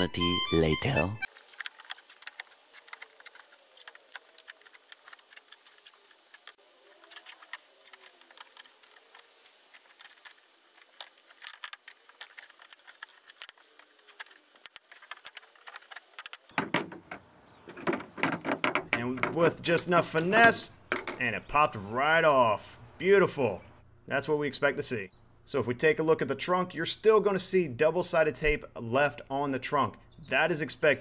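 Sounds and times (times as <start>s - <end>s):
tape tearing loose with crackling: 1.3s - 16.5s.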